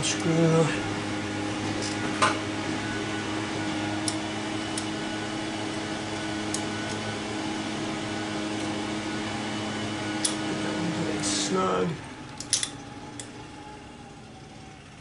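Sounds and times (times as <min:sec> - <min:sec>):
low machine hum: 0:00.0 - 0:15.0
sharp metallic click: 0:12.3 - 0:13.3.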